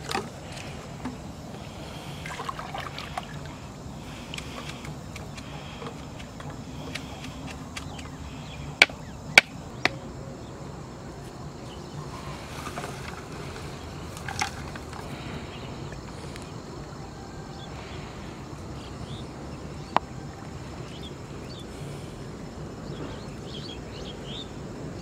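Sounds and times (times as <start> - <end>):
faint outdoor background: 0.0 - 25.0.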